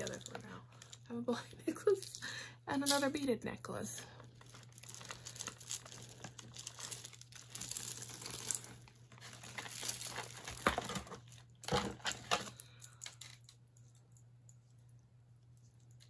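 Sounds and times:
necklaces rustling: 0.0s - 1.1s, 4.2s - 14.7s
beads clicking together: 4.4s - 8.7s.

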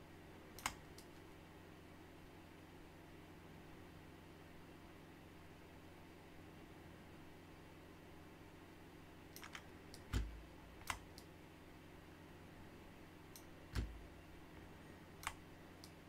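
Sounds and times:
faint steady hum: 0.0s - 16.0s
computer mouse clicking: 0.6s - 1.2s, 9.3s - 11.3s, 13.3s - 14.0s, 15.2s - 16.0s.

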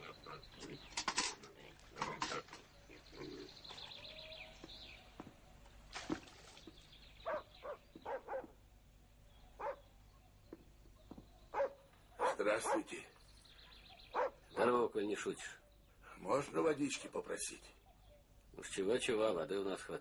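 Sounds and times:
dog barking: 7.2s - 8.6s, 9.6s - 9.8s, 11.5s - 12.9s, 14.1s - 14.7s.

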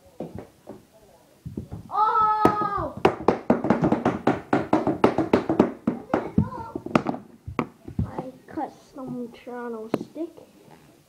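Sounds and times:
plastic hockey sticks clacking: 2.1s - 8.3s, 9.9s - 10.2s.

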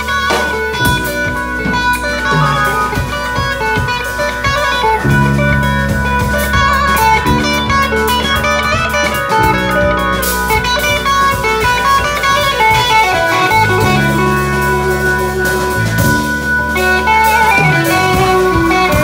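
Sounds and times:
live blues band playing: 0.0s - 19.0s
quick electric guitar notes: 0.0s - 19.0s.

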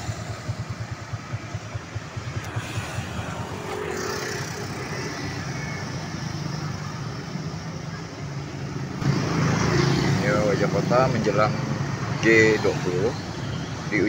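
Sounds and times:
scooter and car engines humming: 0.0s - 14.0s
tyre noise of passing vehicles: 0.0s - 14.0s.

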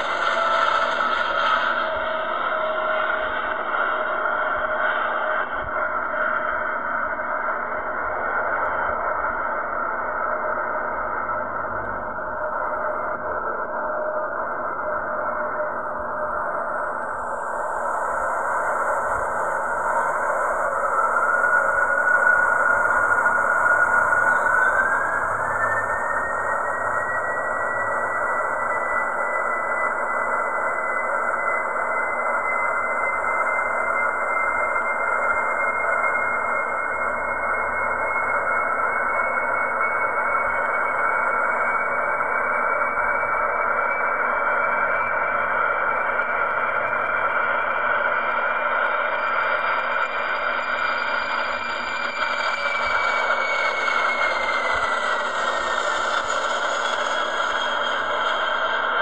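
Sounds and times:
jet engines roaring with whine: 0.0s - 8.3s, 41.9s - 59.0s.

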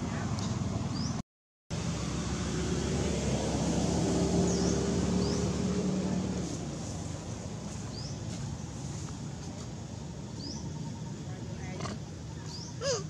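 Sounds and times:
outdoor background noise: 0.0s - 13.0s
low engine drone: 1.7s - 9.0s.

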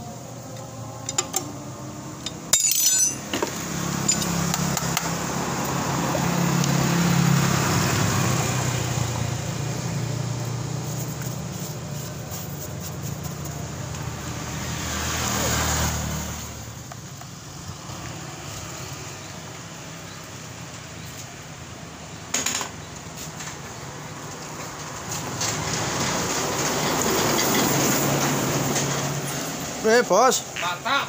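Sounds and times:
metal tools clinking: 2.2s - 4.7s
sharp metallic clatter: 2.2s - 5.1s.

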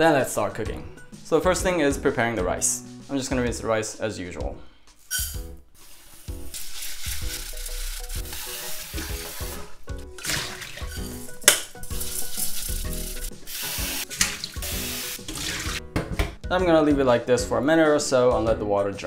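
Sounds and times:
soft background music: 0.0s - 19.0s
water pouring through strainer: 5.8s - 13.6s, 14.2s - 15.8s
tap water running into saucepan: 6.5s - 15.8s.

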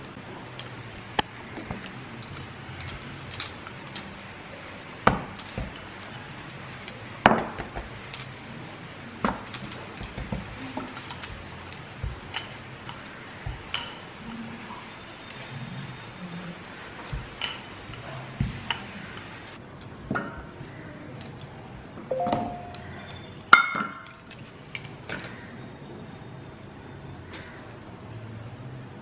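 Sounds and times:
rolling pin knocks and taps: 9.2s - 10.9s.

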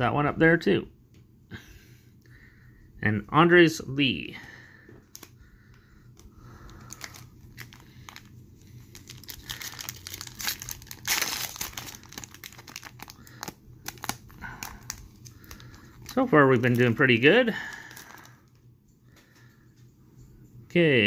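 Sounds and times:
foil wrapper crinkling and tearing: 6.2s - 18.6s.

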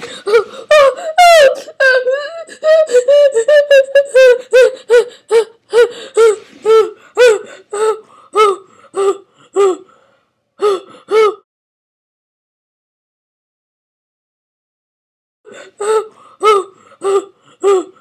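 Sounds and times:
high-pitched voice crying: 0.2s - 9.8s.

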